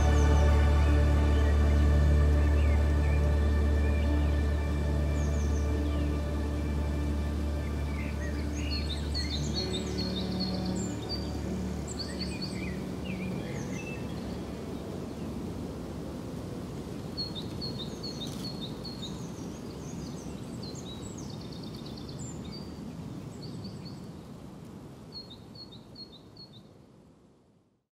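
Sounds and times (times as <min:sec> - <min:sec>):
low outdoor rumble: 0:00.0 - 0:16.9
songbirds chirping: 0:00.0 - 0:27.1.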